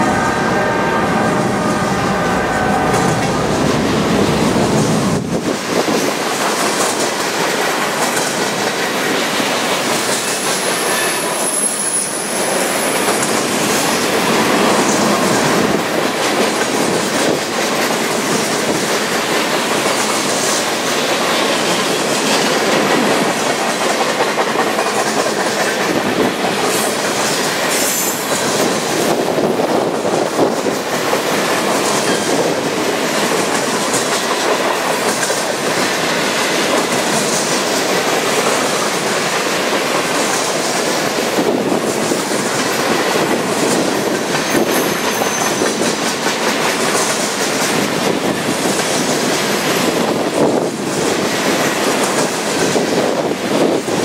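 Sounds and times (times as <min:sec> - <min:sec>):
high wheel squeal: 0:10.4 - 0:13.3, 0:44.4 - 0:45.9.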